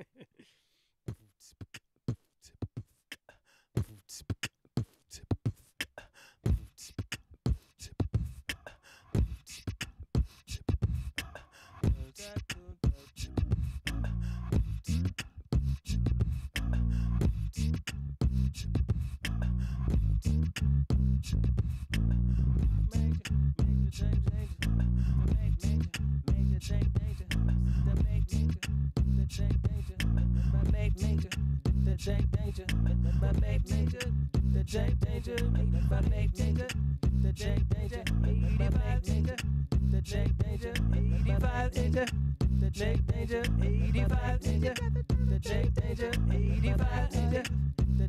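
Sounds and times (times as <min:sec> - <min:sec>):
beatboxed mouth percussion: 0:01.1 - 0:48.0
low vocal bass line: 0:13.0 - 0:48.0.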